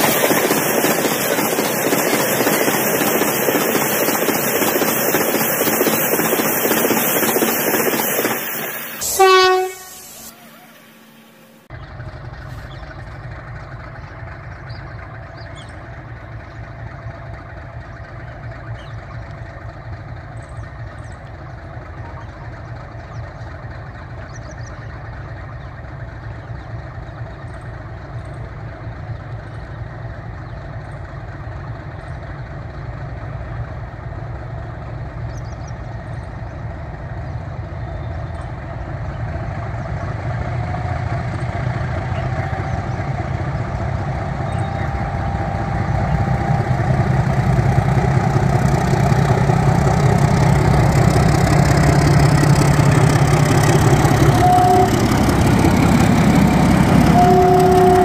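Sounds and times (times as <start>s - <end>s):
diesel locomotive engine rumbling: 0.0s - 58.0s
passing train: 0.0s - 58.0s
short pitched tone: 54.2s - 55.4s, 56.9s - 58.0s.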